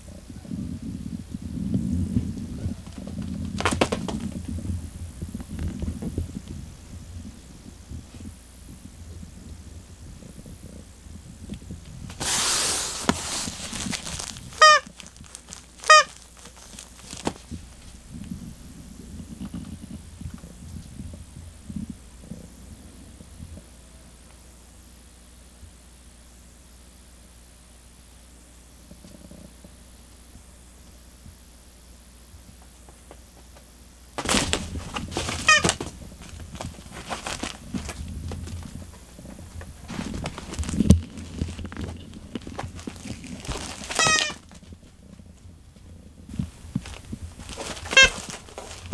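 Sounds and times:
rustling: 1.6s - 8.3s, 11.6s - 22.6s, 34.2s - 48.9s
cat scuffling with toy: 1.9s - 4.8s, 12.0s - 18.3s, 34.2s - 45.4s, 46.3s - 48.9s
cat call: 15.8s - 16.2s, 35.2s - 35.8s, 43.9s - 44.4s, 47.7s - 48.9s.

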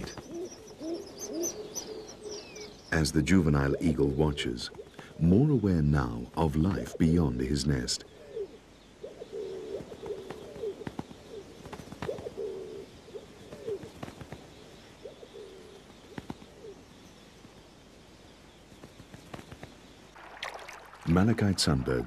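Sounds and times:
pigeons cooing: 0.0s - 5.5s, 6.6s - 16.8s.

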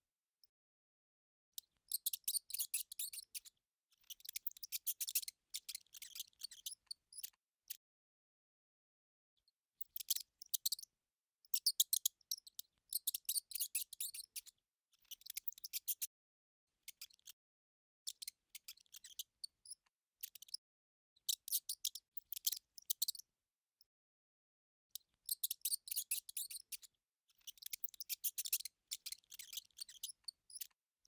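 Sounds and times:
mice squeaking: 1.6s - 7.4s, 9.8s - 10.9s, 11.5s - 16.1s, 18.1s - 20.6s, 21.3s - 23.2s, 25.2s - 30.8s.

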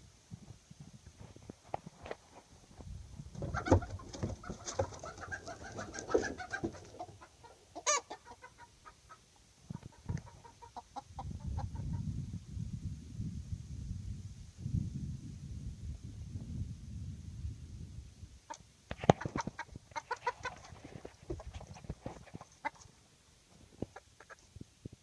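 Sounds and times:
chicken calls: 3.4s - 12.1s, 18.5s - 23.0s, 23.8s - 24.5s
chicken crowing: 5.0s - 8.7s.

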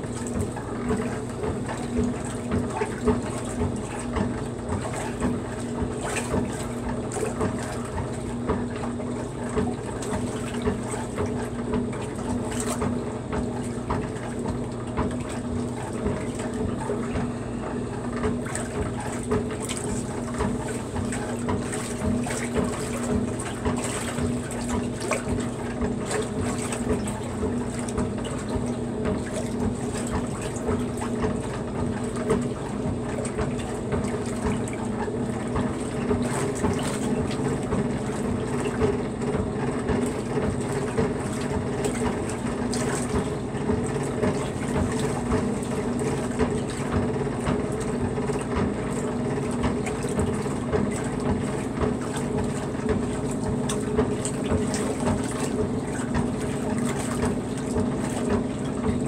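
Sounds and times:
low mechanical hum: 0.0s - 59.0s
washer churning and sloshing water: 0.0s - 59.0s.

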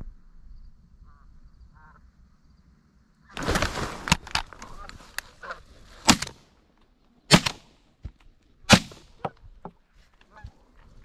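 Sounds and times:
shotgun shots: 6.0s - 6.4s, 7.3s - 7.7s, 8.7s - 9.2s.

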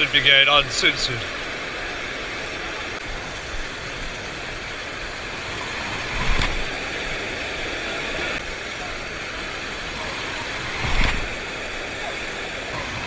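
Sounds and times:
surf breaking on rocks: 0.0s - 13.0s
loud wave thump: 10.6s - 11.4s.

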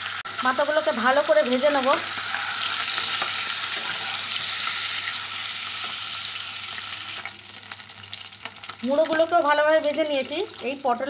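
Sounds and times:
fish frying in oil: 0.0s - 11.0s
spatula scraping: 2.0s - 5.2s.

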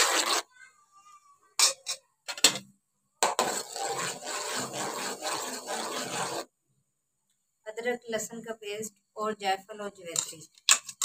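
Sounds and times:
spoon scraping metal pot: 0.0s - 0.4s, 3.2s - 6.5s.

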